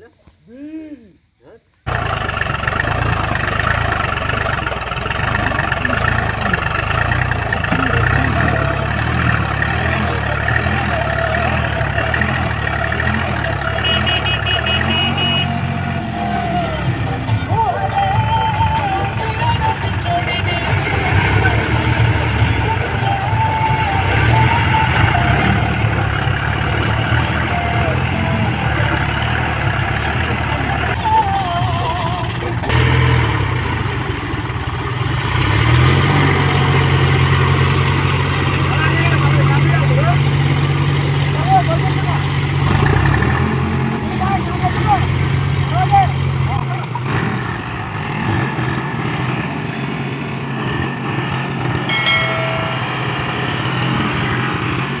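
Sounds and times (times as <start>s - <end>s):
wheels churning mud: 1.9s - 31.2s
tractor diesel engine under load: 1.9s - 55.0s
sharp clicks: 46.6s - 47.0s, 48.6s - 48.9s, 51.6s - 51.9s
short ringing tone: 51.9s - 53.5s.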